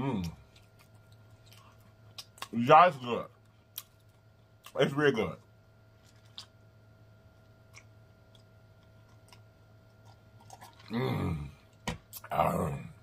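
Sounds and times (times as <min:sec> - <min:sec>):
person humming mmm: 0:10.8 - 0:13.0.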